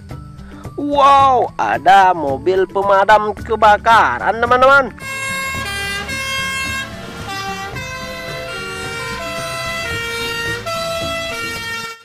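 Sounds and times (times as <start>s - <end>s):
fire truck sirens: 5.0s - 12.0s.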